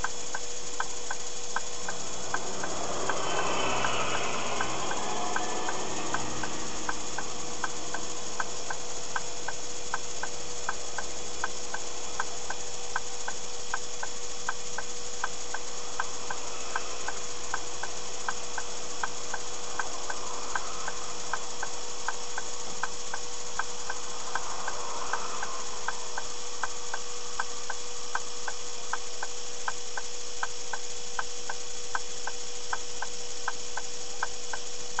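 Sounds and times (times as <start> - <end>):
electrical hum and hiss: 0.0 - 35.0
turn signal ticking: 0.0 - 35.0.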